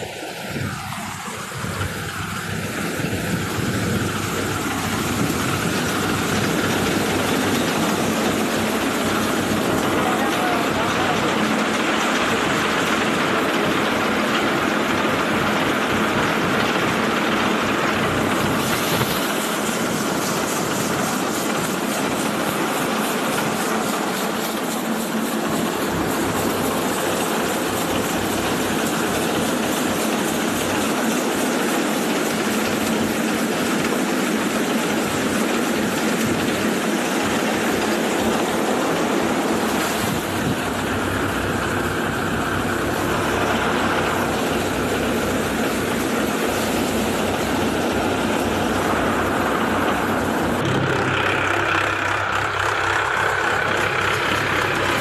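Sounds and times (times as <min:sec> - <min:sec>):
threshing machine drone and rattle: 0:00.0 - 0:55.0.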